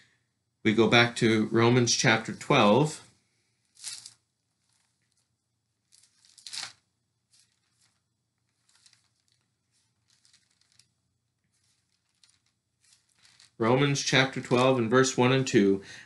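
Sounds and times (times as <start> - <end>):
thin pages turning: 3.7 - 14.9.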